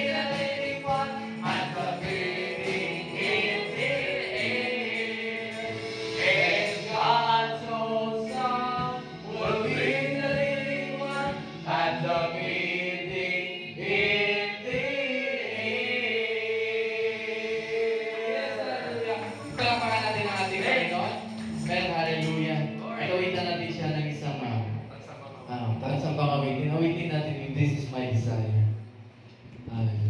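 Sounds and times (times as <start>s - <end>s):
drum hits: 0.0s - 15.1s
voices singing gospel song: 0.0s - 24.0s
live band: 0.0s - 25.3s
keyboard: 0.0s - 30.0s.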